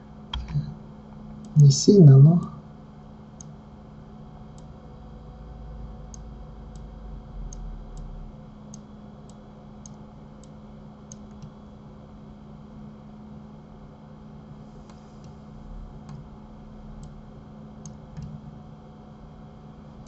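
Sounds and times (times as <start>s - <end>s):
steady low hum: 0.0s - 20.0s
computer mouse clicks: 8.7s - 11.6s, 16.0s - 16.2s, 17.8s - 18.4s.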